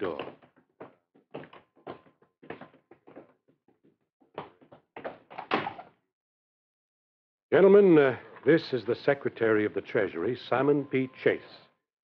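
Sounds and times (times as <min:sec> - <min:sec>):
footsteps: 0:00.0 - 0:05.4.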